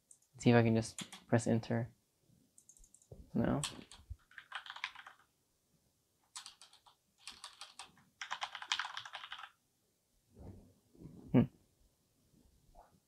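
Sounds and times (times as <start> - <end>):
computer keyboard typing: 0.9 - 1.3, 2.6 - 5.3, 6.3 - 9.6.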